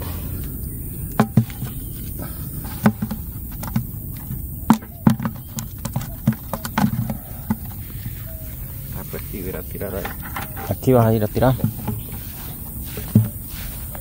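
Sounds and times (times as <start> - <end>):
fish thumping in plastic bucket: 1.1 - 2.0, 2.6 - 8.8, 9.9 - 14.0.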